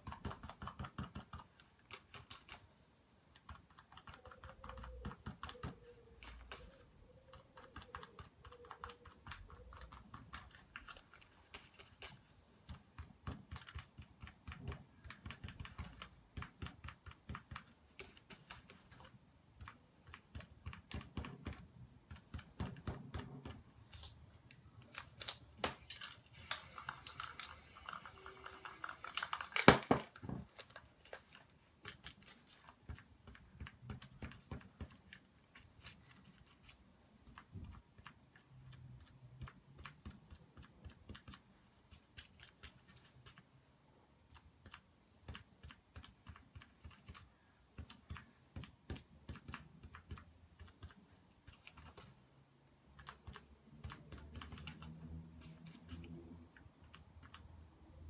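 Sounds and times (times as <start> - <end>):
paper clicks and taps: 0.0 - 43.5, 44.2 - 52.2, 52.9 - 57.5
spray can click: 26.3 - 29.9
aerosol spray can spraying: 26.3 - 30.0.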